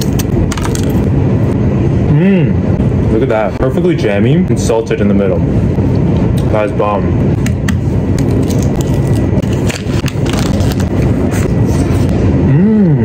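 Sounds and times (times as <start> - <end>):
steady low rumble: 0.0 - 13.0
person humming: 2.0 - 2.6, 12.4 - 13.0
food clicks and crackles: 7.6 - 11.2
biting and chewing food: 7.6 - 11.6.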